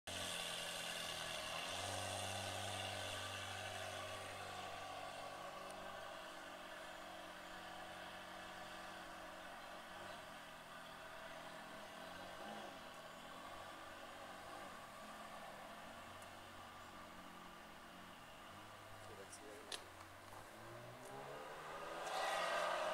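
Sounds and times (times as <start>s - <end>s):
car engines idling: 0.1s - 22.9s.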